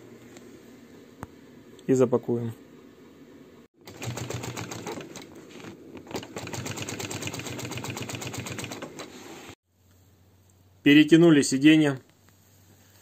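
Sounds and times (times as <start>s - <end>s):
sewing machine clatter: 3.8s - 9.3s.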